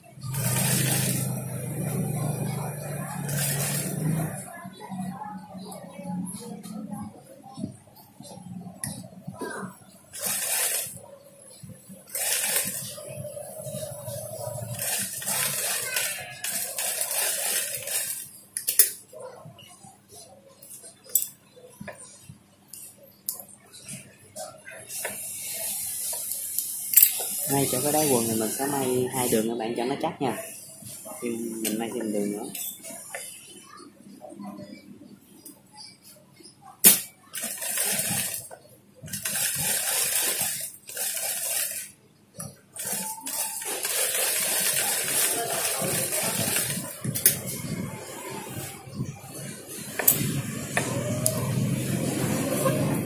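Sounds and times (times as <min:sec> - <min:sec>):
sewing machine stitching: 0:00.2 - 0:04.4, 0:10.1 - 0:11.0, 0:12.1 - 0:18.3, 0:36.9 - 0:41.9, 0:42.8 - 0:47.4.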